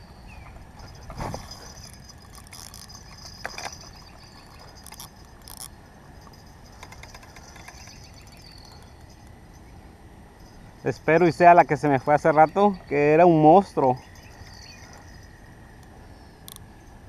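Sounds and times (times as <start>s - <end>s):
crickets chirring: 0.0s - 17.0s
fishing rod and reel clicking: 1.7s - 9.4s, 16.4s - 16.6s.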